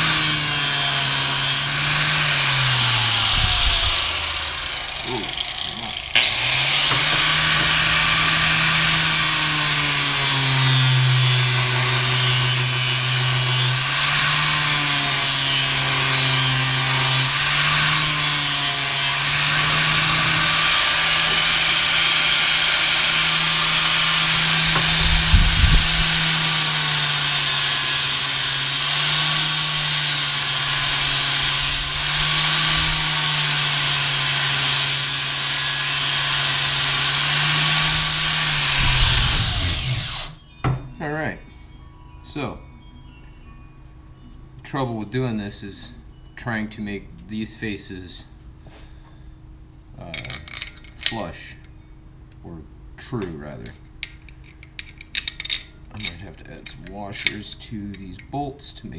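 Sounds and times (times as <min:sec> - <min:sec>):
angle grinder grinding metal: 0:00.0 - 0:40.9, 0:53.0 - 0:58.5.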